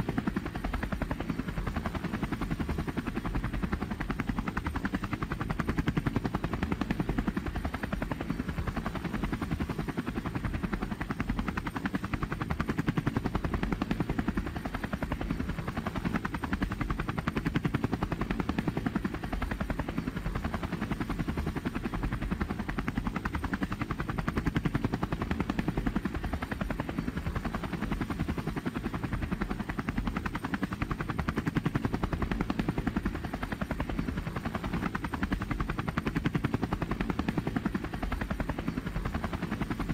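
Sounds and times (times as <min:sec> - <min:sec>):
helicopter rotor blade chop: 0:00.0 - 0:39.9.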